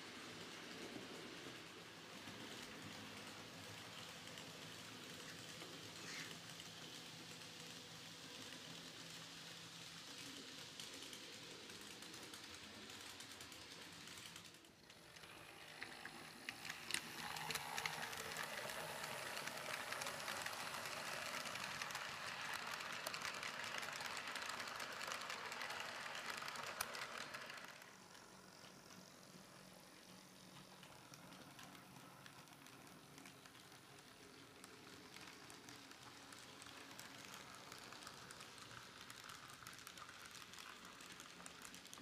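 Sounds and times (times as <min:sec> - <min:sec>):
model train motors whirring: 0:00.0 - 0:42.0
wheels clicking over rail joints: 0:29.4 - 0:42.0.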